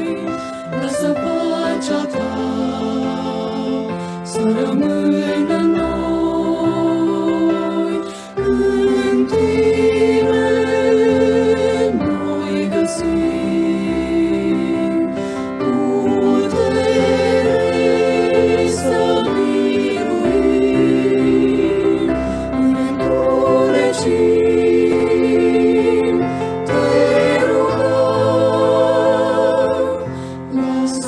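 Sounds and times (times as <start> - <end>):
slow choral singing: 0.0 - 31.0
sustained accompaniment: 0.0 - 31.0.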